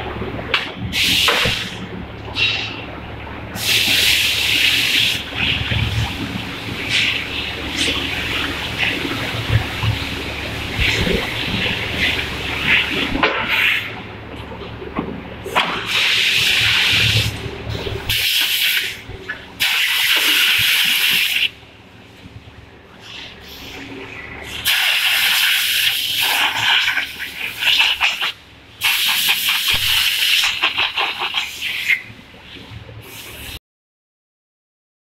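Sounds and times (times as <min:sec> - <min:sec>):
hissing air bursts: 0:00.9 - 0:01.8, 0:03.6 - 0:05.3, 0:24.5 - 0:32.0.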